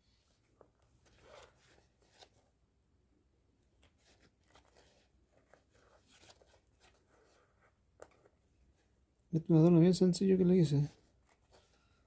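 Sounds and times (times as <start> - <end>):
faint rustles and scrapes of thread: 0.0 - 2.6, 3.6 - 9.1, 10.7 - 12.0.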